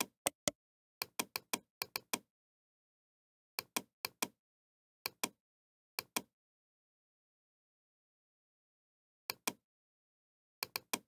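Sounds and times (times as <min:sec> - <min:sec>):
computer mouse button clicking: 0:00.0 - 0:00.5.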